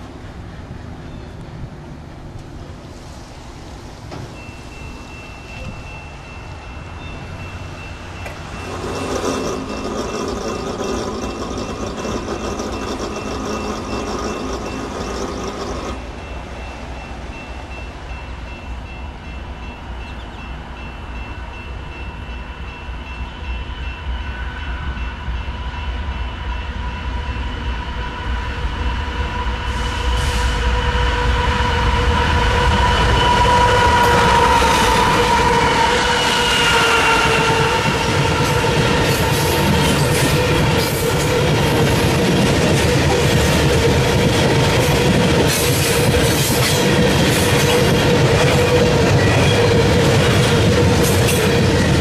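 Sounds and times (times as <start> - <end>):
locomotive engines and wheels rumbling: 0.0 - 52.0
train horn blast: 23.3 - 41.3.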